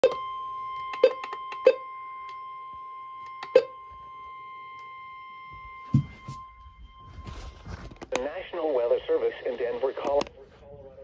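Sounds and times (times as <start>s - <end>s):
faint steady high tone: 0.0s - 8.0s
radio handling clicks: 9.5s - 10.4s.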